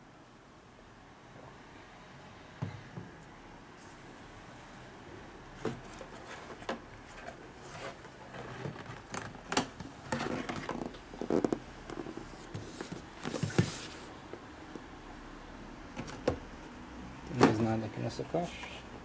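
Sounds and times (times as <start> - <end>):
cardboard boxes tapping and rustling: 5.6 - 14.4.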